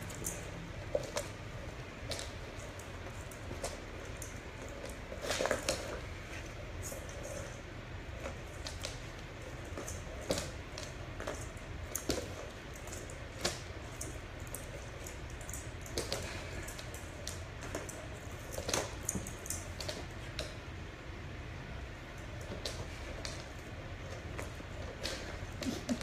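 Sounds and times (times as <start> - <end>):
toy ball rolling on floor: 0.0 - 20.6
steady low hum: 0.0 - 26.0.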